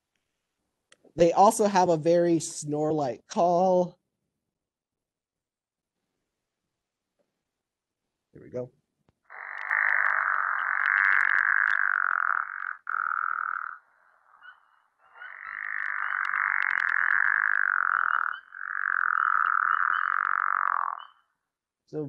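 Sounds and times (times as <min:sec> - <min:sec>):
frog snore-like croaking: 0:09.3 - 0:21.1.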